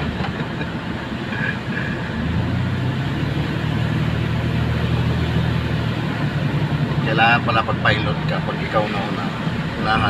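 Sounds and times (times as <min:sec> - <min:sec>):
car engine and road drone: 0:00.0 - 0:10.0.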